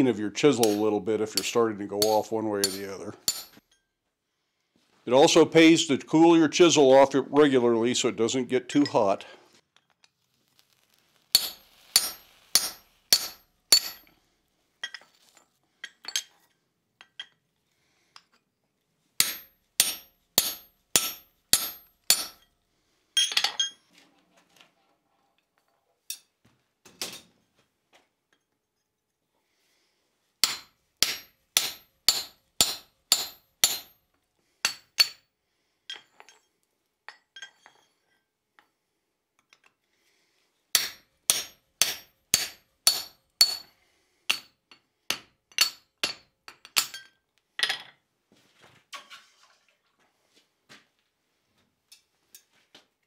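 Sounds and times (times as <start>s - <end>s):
hammer striking chisel on metal: 0.6s - 3.8s, 11.4s - 14.1s, 19.2s - 22.5s, 30.4s - 34.0s, 34.6s - 35.3s, 40.8s - 43.7s, 44.3s - 47.1s.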